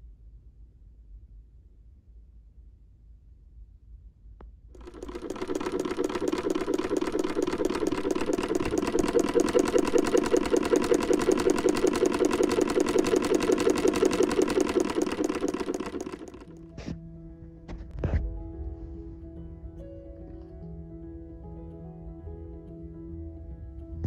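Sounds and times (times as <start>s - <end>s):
sewing machine stitching: 4.8s - 16.6s.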